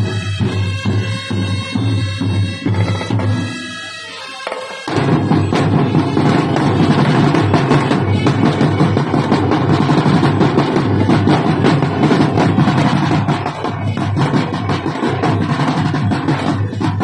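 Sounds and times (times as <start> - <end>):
fast snare drumming: 4.5 - 17.0.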